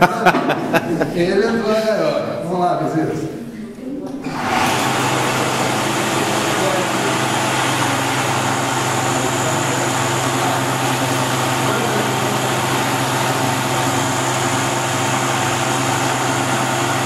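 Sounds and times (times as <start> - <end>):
motor hum: 4.1 - 17.0.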